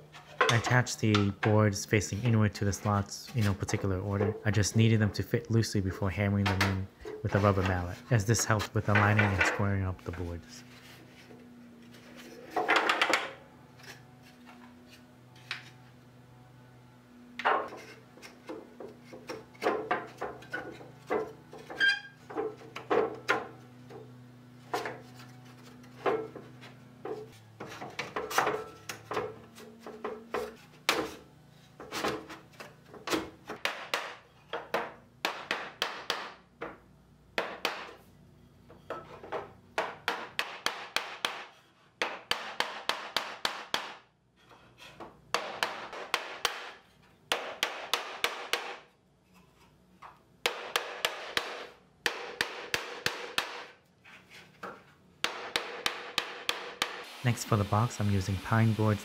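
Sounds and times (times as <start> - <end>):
wooden boards clacking together: 12.5 - 13.4
rubber mallet tapping boards: 33.6 - 36.4, 39.8 - 44.0, 45.3 - 46.7, 50.4 - 53.7, 55.2 - 57.0.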